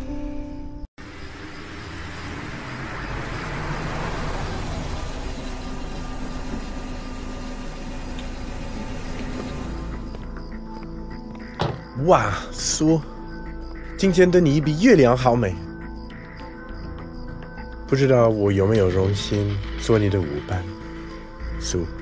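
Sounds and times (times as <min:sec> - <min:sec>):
car engine and tyre noise: 0:01.0 - 0:11.6.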